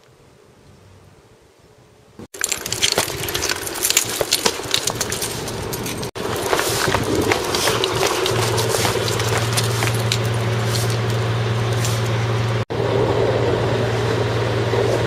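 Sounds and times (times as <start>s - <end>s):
leash clips and tags jingling: 2.4s - 12.4s
dog paws on gravel: 2.4s - 12.6s
footsteps on gravel: 2.4s - 12.6s
steady low hum: 2.4s - 15.0s.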